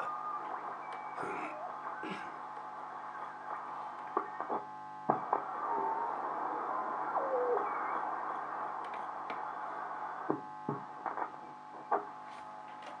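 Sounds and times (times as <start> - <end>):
hum: 0.0 - 13.0
radio static hiss: 0.0 - 13.0
falling radio whistle: 5.5 - 8.6
sharp crackles: 10.2 - 12.9.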